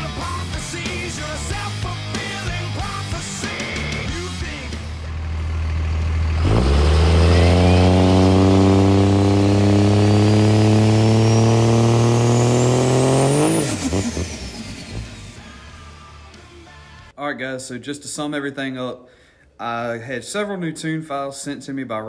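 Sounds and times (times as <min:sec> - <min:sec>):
diesel engine revving: 0:00.0 - 0:16.4.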